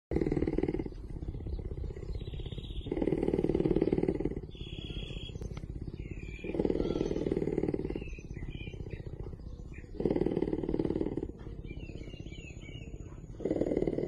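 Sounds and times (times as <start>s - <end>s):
cougar purring: 0.1s - 14.0s.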